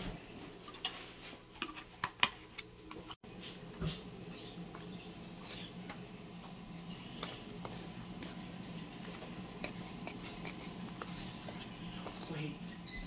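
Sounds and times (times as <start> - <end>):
brush scraping paste in plastic bowl: 6.5 - 12.6.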